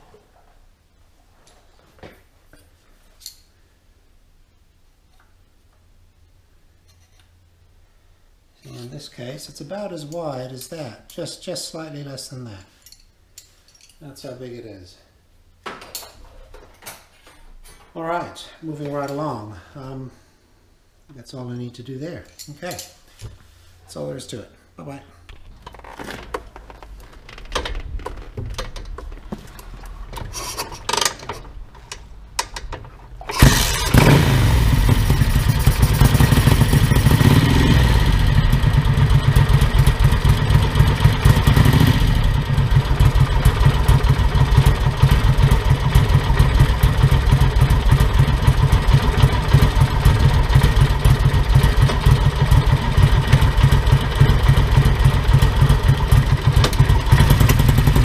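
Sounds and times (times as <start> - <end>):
clicks and knocks: 25.3 - 33.2
motorcycle engine starting and idling: 25.6 - 58.0.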